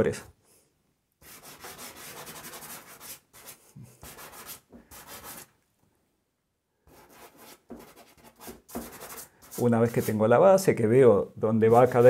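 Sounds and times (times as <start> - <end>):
pastel scratching across paper: 1.2 - 5.5, 6.9 - 10.2, 11.6 - 12.0.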